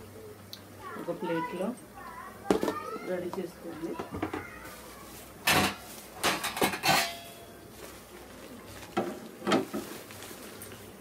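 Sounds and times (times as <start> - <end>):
metal kitchenware clinking: 5.4 - 7.5.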